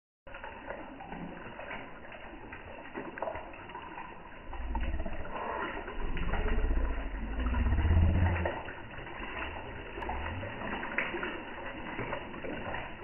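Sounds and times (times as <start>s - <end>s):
fish slurping and splashing: 0.3s - 13.0s
low rumble: 4.4s - 11.0s.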